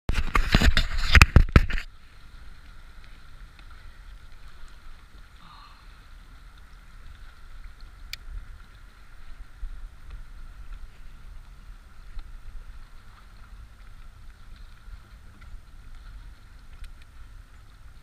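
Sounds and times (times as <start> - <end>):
rustling on camera: 0.1 - 5.4
water around kayak: 0.1 - 18.0
wind: 0.1 - 18.0.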